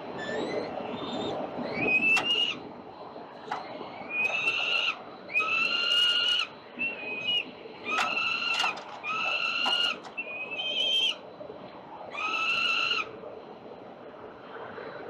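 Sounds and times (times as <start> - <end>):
young falcons wailing calls: 0.2 - 2.6, 3.5 - 11.2, 12.1 - 13.1.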